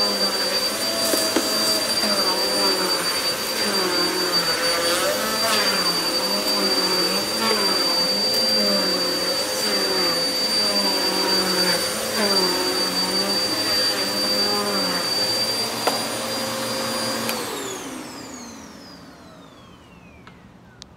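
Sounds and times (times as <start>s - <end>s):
upright vacuum cleaner running: 0.0s - 20.8s
vacuum motor spinning down: 0.0s - 20.9s.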